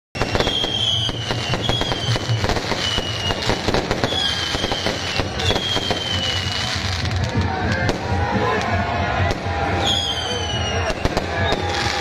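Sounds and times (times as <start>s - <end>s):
high falling whistle: 0.2s - 6.4s
fireworks crackling and banging: 0.2s - 12.0s.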